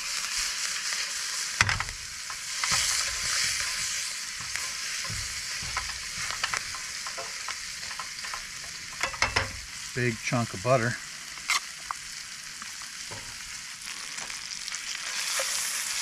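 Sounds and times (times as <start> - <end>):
steak sizzling in a frying pan: 0.0 - 16.0
metal tongs knocking on pan: 1.6 - 9.6.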